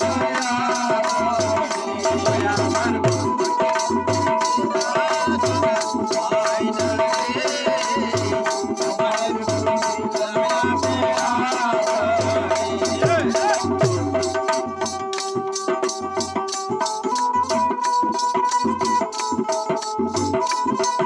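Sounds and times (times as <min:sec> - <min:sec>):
rattle-like percussion: 0:00.0 - 0:21.0
hand claps: 0:00.1 - 0:04.3, 0:13.2 - 0:15.7, 0:16.6 - 0:21.0
low drum beat: 0:12.0 - 0:14.6.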